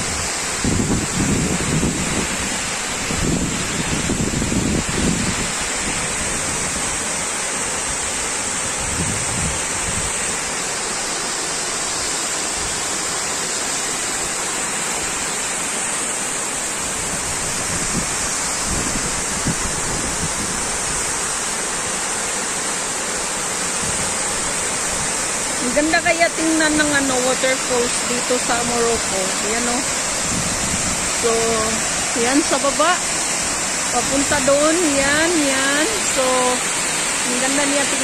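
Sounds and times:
wind buffeting microphone: 0:00.0 - 0:07.0, 0:07.9 - 0:10.3, 0:16.9 - 0:21.2, 0:28.5 - 0:32.7
waterfall rushing: 0:00.0 - 0:38.0.

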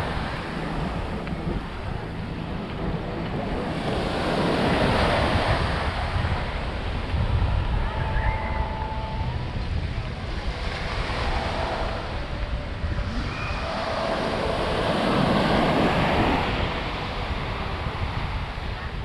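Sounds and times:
surf washing onto beach: 0:00.0 - 0:19.0
wind rumbling on microphone: 0:00.0 - 0:19.0.

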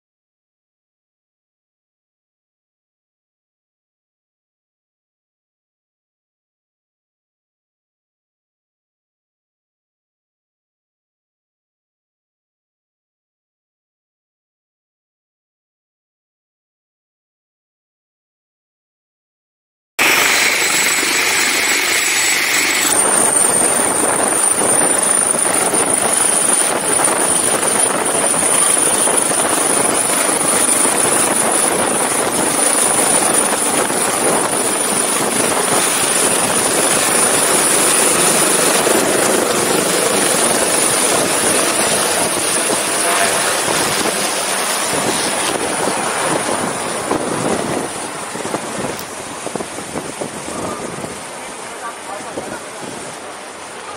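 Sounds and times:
helicopter rotor and turbine noise: 0:20.0 - 0:53.9
high engine whine: 0:20.0 - 0:53.9.

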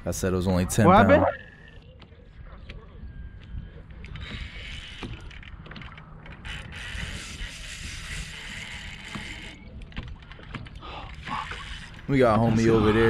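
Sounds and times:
fishing reel ratcheting whir: 0:06.3 - 0:09.6.

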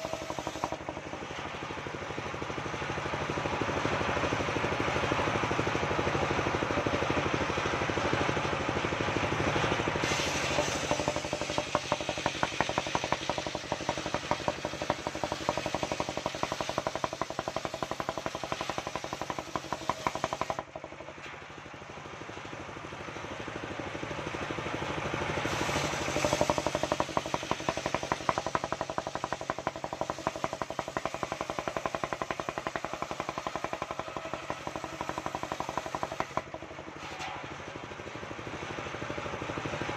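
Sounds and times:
sawmill knocking beat: 0:00.0 - 0:01.1, 0:10.5 - 0:20.7, 0:25.8 - 0:36.6
saw blade ripping log: 0:25.5 - 0:28.0.

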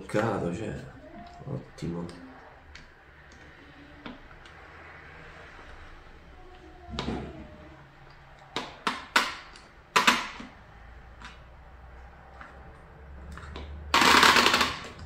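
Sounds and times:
sharp plastic clicks: 0:08.4 - 0:10.6.

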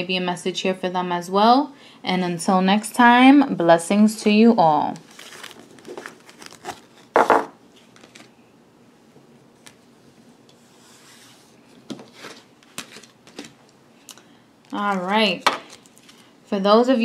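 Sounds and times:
cards sliding and rubbing: 0:10.6 - 0:13.5.

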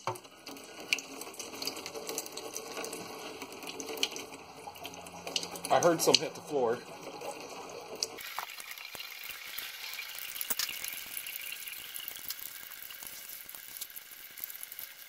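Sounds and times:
fluid pouring into a drain pan: 0:00.0 - 0:15.0
drips ticking: 0:00.4 - 0:09.2.

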